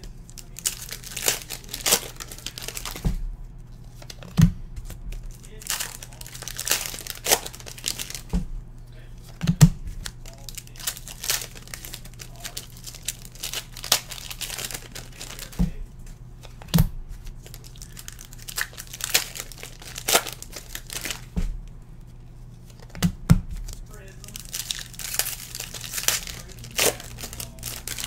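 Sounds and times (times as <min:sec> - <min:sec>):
foil wrappers crinkling and tearing: 0:00.0 - 0:08.3, 0:09.2 - 0:15.8, 0:16.4 - 0:21.4, 0:22.0 - 0:28.0
dull thumps: 0:21.2 - 0:21.7.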